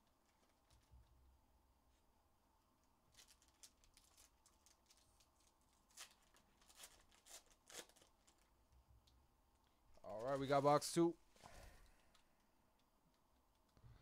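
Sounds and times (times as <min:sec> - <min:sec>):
foil packs crinkling and tearing: 0:03.1 - 0:08.5.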